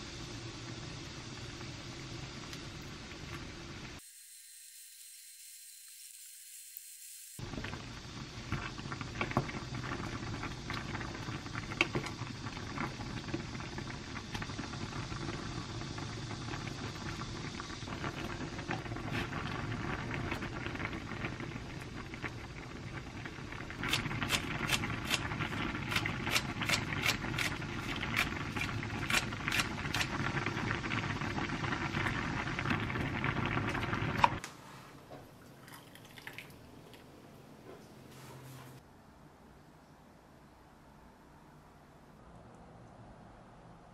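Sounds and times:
soup boiling with bubbling: 0:00.0 - 0:04.0, 0:07.4 - 0:34.4, 0:35.3 - 0:37.1.

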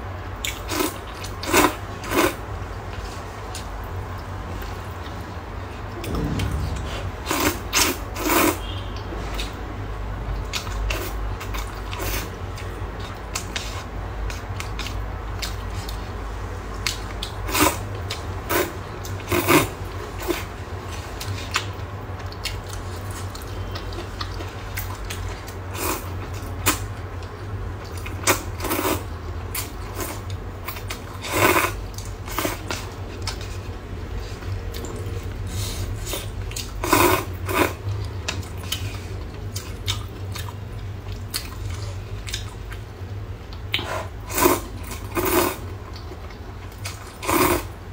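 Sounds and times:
steady low hum: 0:05.8 - 0:08.3
chewing sounds: 0:36.1 - 0:42.9
person slurping noodles: 0:43.8 - 0:45.6, 0:47.2 - 0:47.7.

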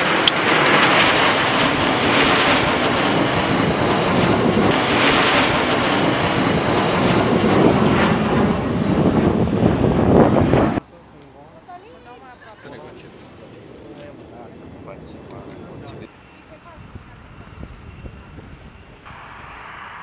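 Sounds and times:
jet engines roaring overhead: 0:00.0 - 0:20.0
faint high whine: 0:12.9 - 0:20.0.

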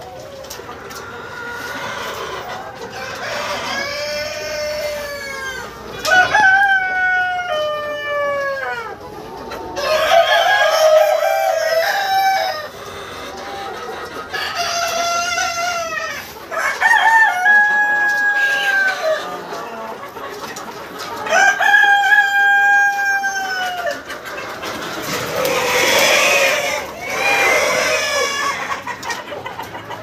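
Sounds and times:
roosters crowing: 0:01.6 - 0:09.0, 0:09.7 - 0:13.5, 0:14.2 - 0:19.5, 0:21.2 - 0:24.0, 0:25.0 - 0:29.0.

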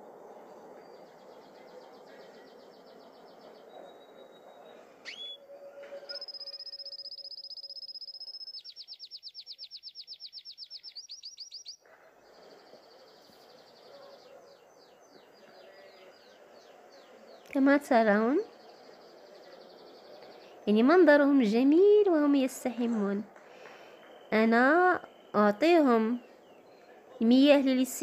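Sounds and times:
canary singing: 0:02.5 - 0:11.8.

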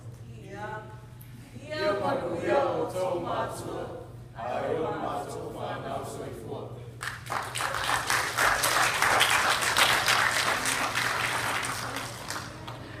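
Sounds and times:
congregation applauding: 0:07.0 - 0:13.0.

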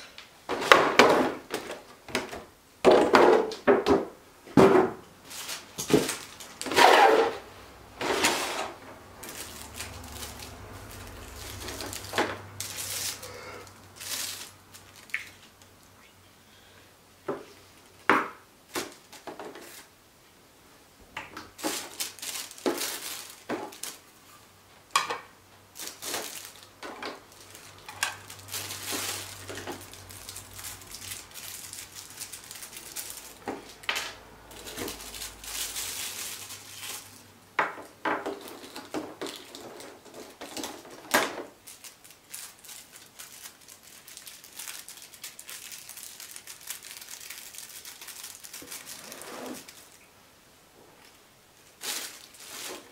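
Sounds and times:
plastic wrap crinkling: 0:05.2 - 0:15.7, 0:18.7 - 0:19.9, 0:21.4 - 0:25.0, 0:25.7 - 0:50.1, 0:51.0 - 0:52.9.

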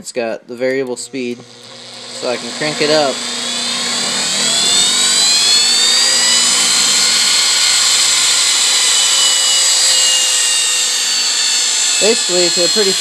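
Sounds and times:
belt grinder motor whine: 0:01.0 - 0:13.0.

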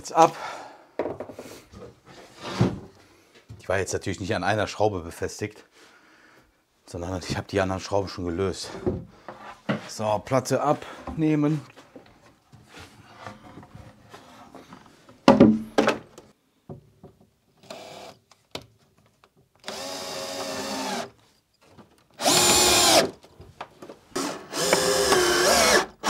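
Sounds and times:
wooden board knocks: 0:15.3 - 0:16.0
cordless drill driving screws: 0:17.6 - 0:18.2, 0:19.6 - 0:21.2, 0:22.2 - 0:23.2, 0:24.2 - 0:26.0.

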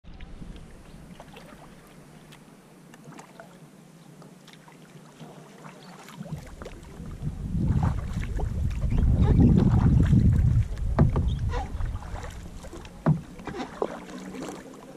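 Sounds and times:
paddle splashing and dripping: 0:00.1 - 0:14.9
water trickling: 0:04.5 - 0:14.9
wind buffeting microphone: 0:06.2 - 0:13.4.

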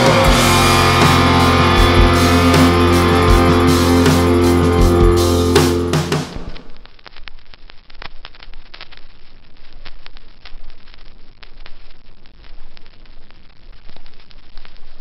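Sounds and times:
fireworks popping and crackling: 0:06.1 - 0:15.0.

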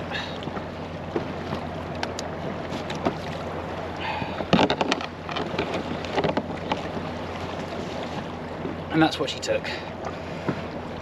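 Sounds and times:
handling clicks and knocks: 0:04.5 - 0:06.8.

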